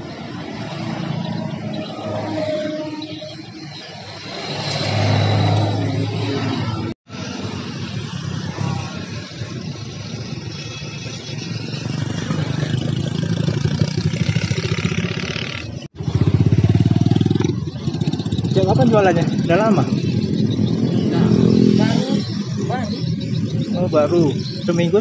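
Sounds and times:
passing vehicles: 0.0s - 25.0s
motorcycle engine running: 6.6s - 25.0s.

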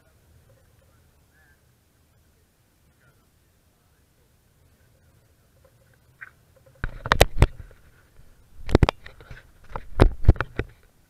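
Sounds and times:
camera handling knocks and clicks: 6.8s - 7.8s, 8.6s - 10.8s.

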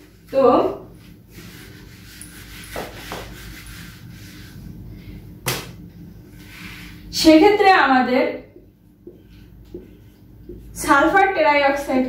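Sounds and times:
eraser rubbing on whiteboard: 1.0s - 4.6s.

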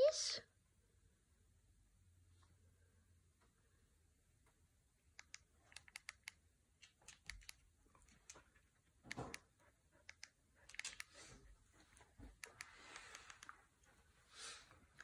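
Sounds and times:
dog claws clicking on floor: 5.2s - 9.5s, 10.1s - 11.3s.

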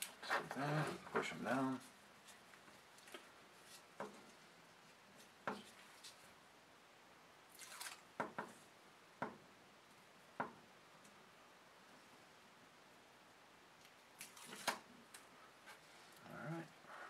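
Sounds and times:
tape backing peeling: 7.5s - 8.1s, 14.2s - 15.3s.

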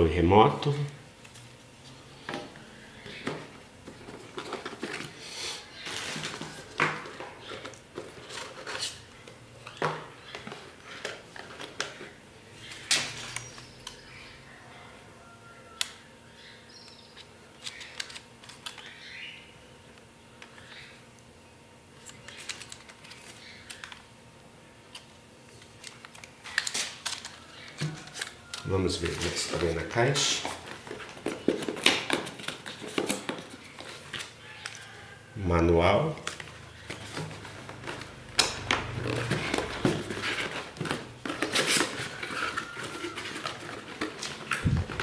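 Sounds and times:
hands rummaging in cardboard box: 3.8s - 5.2s, 38.9s - 45.0s.

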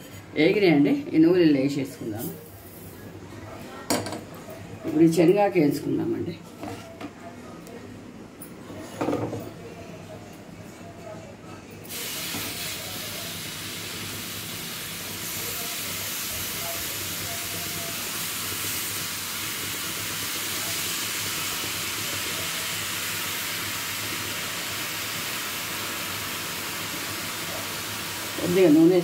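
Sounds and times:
wet leaves hissing in hot pan: 11.9s - 29.0s.

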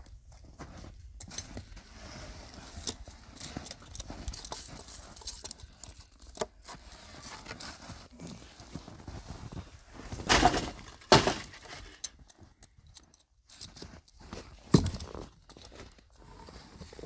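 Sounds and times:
log scraping thud: 10.1s - 12.0s.

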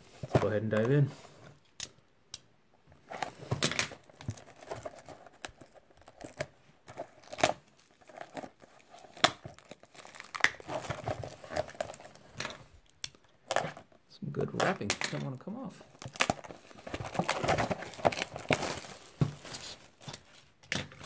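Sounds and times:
plastic shrink wrap tearing: 3.7s - 12.5s, 15.8s - 20.2s.

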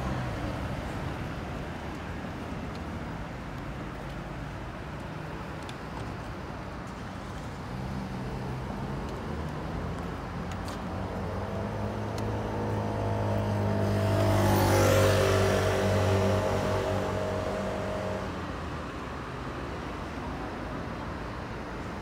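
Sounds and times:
street traffic: 0.0s - 22.0s
vehicle engine approaching: 10.4s - 18.8s.

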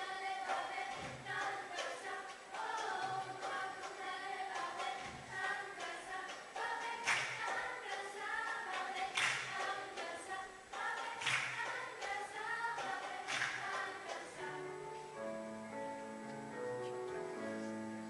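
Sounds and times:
girls' choir singing a cappella: 0.0s - 16.7s
sharp clap-like hits: 2.6s - 12.2s, 12.8s - 14.3s.

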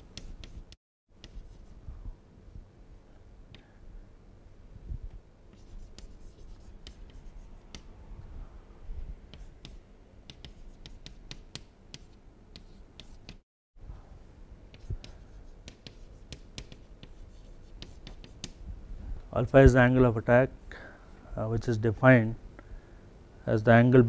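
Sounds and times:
chalk tapping and scratching on blackboard: 0.0s - 1.8s, 5.5s - 7.9s, 9.3s - 13.4s, 14.7s - 18.6s.

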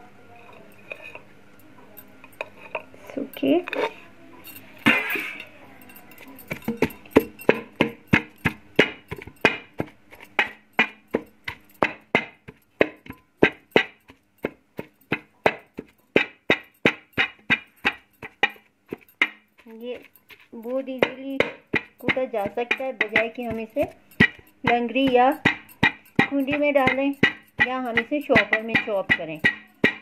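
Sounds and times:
scrape in metal pot: 2.4s - 5.5s
pounding against a metal pot: 6.2s - 30.0s.

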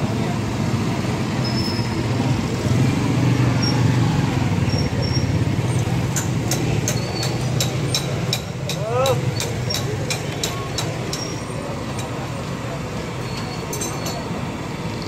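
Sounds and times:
low rumble of street noise: 0.0s - 15.0s
sharp regular clicks: 6.1s - 11.3s.

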